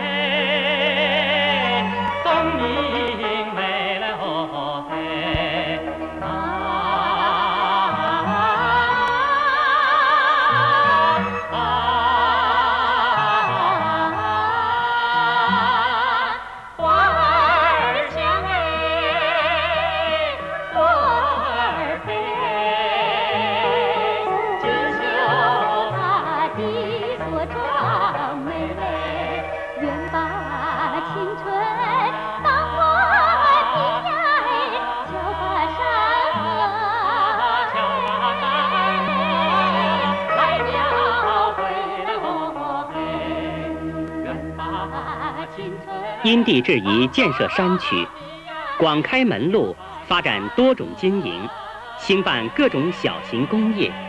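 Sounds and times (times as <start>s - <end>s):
soundtrack music with vibrato melody: 19.5s - 35.7s.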